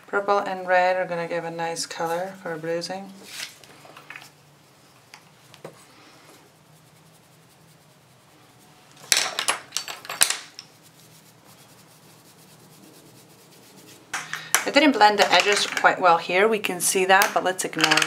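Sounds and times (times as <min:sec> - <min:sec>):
knocks and rubbing on table: 0:09.0 - 0:11.6, 0:12.4 - 0:16.1, 0:17.2 - 0:18.0.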